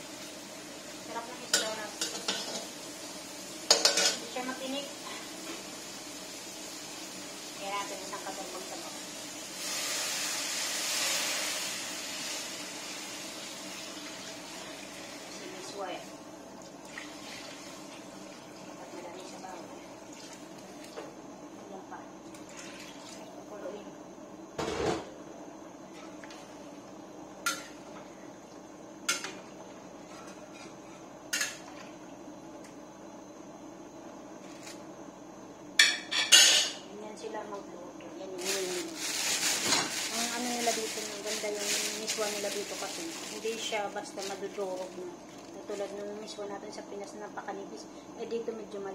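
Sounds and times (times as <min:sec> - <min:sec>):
water hissing in hot wok: 0:00.0 - 0:20.8, 0:38.3 - 0:45.8.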